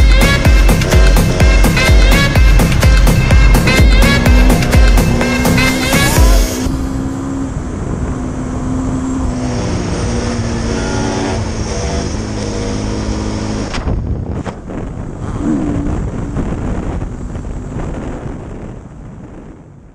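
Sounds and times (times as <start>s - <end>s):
dirt bike engine revving: 0.0s - 13.7s.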